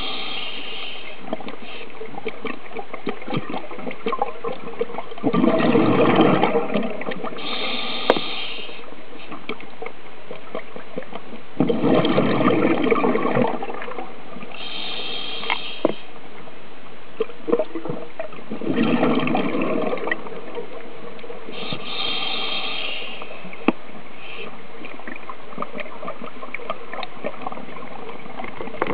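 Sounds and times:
regulator inhale hiss: 0.0s - 2.0s, 7.4s - 9.4s, 14.6s - 16.2s, 21.5s - 24.6s
exhaled bubbles underwater: 0.0s - 14.8s, 17.2s - 28.9s
steady underwater hiss: 0.0s - 28.9s.

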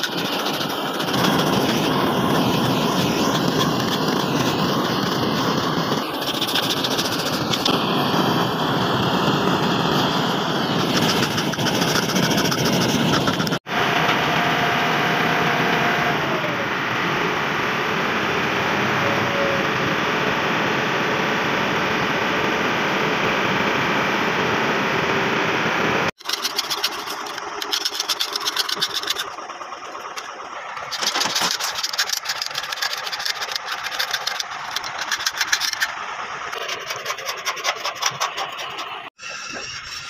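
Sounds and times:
sandpaper rasping on metal: 0.0s - 7.7s, 10.8s - 13.6s, 26.2s - 29.4s, 30.9s - 35.9s, 36.6s - 40.0s
steady loud noise: 0.0s - 39.2s.

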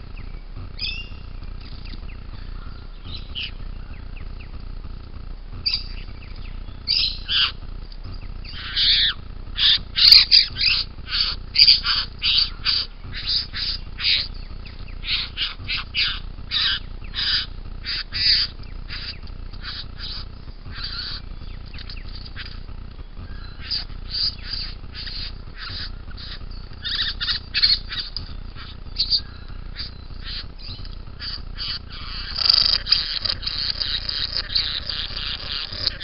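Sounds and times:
bird short calls: 8.4s - 36.0s.

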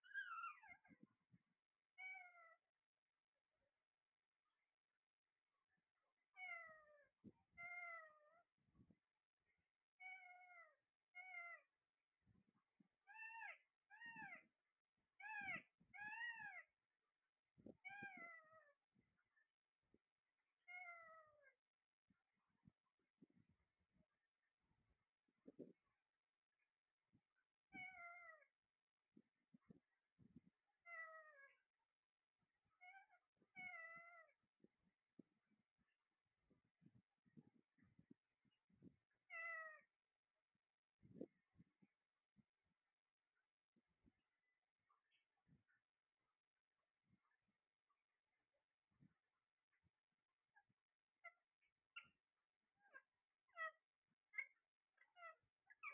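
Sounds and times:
meow-like calls: 2.0s - 2.6s, 10.0s - 11.7s, 17.8s - 18.7s, 20.7s - 21.5s, 27.8s - 28.5s, 32.8s - 34.4s.

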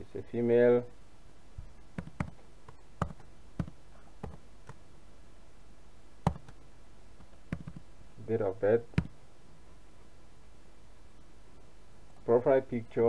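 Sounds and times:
keyboard keys clicking: 2.0s - 4.8s, 7.5s - 7.8s.

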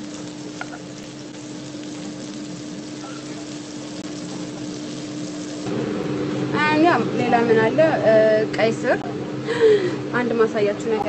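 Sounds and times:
meat patties sizzling: 0.0s - 5.8s.

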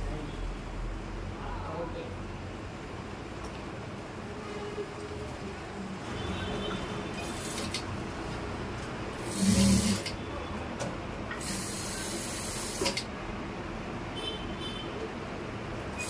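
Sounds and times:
sewing machine stitching: 7.2s - 7.8s, 9.2s - 10.2s, 11.4s - 13.1s.

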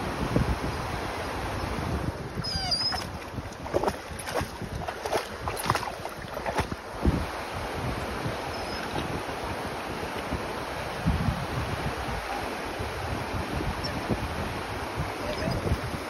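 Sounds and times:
river water rushing over rocks: 0.0s - 16.0s
brief high-pitched squeak: 2.4s - 3.1s
splashes of wading feet: 2.4s - 7.0s.

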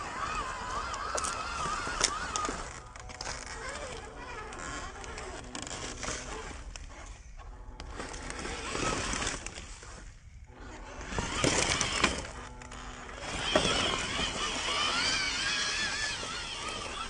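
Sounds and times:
dry leaves crackling and rustling: 7.9s - 17.0s.

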